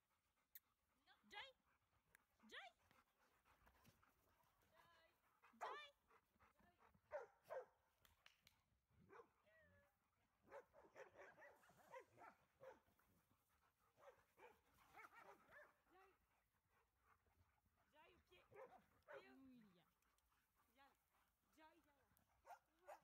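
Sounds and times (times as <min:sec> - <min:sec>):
dogs barking and yipping: 0:05.4 - 0:07.8, 0:10.5 - 0:21.0, 0:22.3 - 0:23.0.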